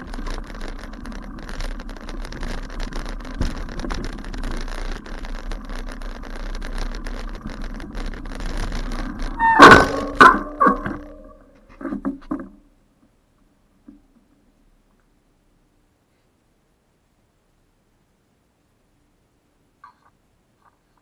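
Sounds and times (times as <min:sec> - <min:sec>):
bicycle rumbling over rough grass: 0:00.0 - 0:12.7.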